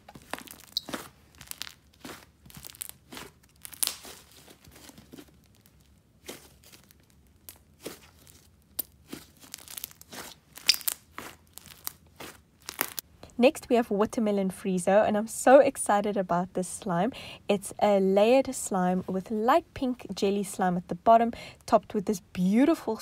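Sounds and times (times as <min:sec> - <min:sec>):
slime crackling and popping: 0:00.1 - 0:13.1.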